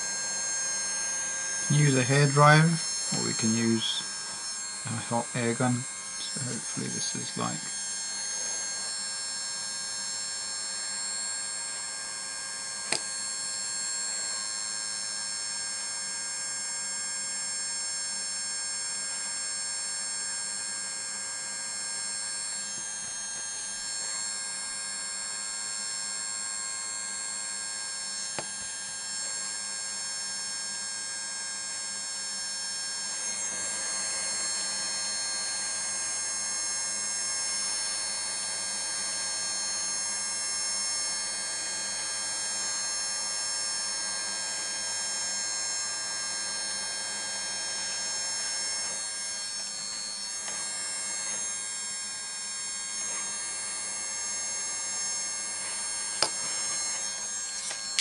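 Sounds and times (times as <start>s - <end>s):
hot air gun blowing: 0.0s - 9.5s, 55.6s - 58.0s.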